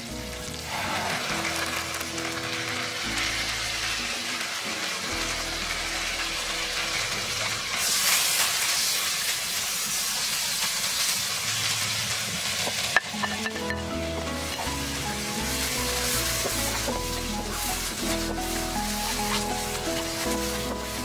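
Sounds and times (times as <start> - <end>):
background music: 0.0 - 8.4, 13.0 - 21.0
food sizzling in hot oil: 0.0 - 21.0
spatula stirring and scraping: 15.6 - 21.0.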